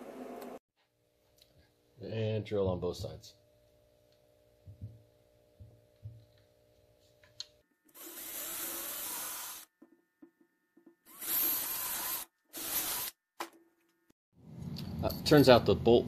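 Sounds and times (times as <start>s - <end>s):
cordless drill boring plastic: 7.9s - 9.7s, 11.1s - 13.1s.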